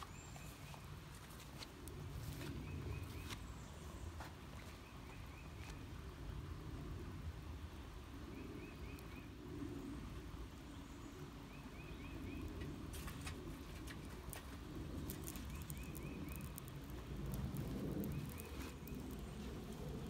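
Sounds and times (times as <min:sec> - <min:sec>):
low steady rumble: 0:00.0 - 0:20.0
bird chirping: 0:08.3 - 0:09.3, 0:10.7 - 0:13.4, 0:15.1 - 0:20.0
fire popping: 0:12.5 - 0:20.0
wood fire crackling: 0:12.5 - 0:20.0.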